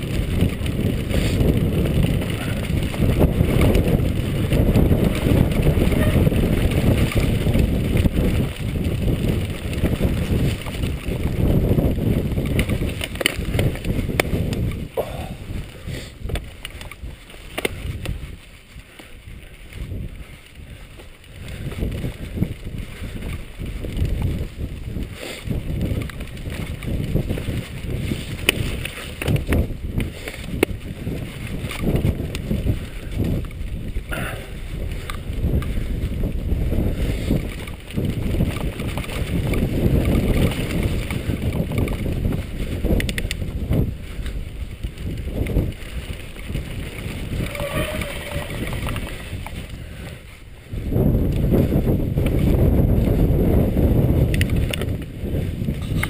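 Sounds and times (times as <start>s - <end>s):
bike rattling over bumps: 0.0s - 56.0s
wind rumble on microphone: 0.0s - 56.0s.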